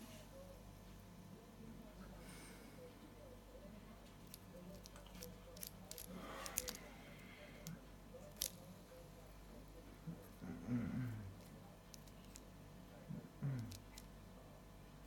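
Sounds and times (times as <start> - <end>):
fidget spinner clicking: 4.2 - 6.8, 7.6 - 8.6.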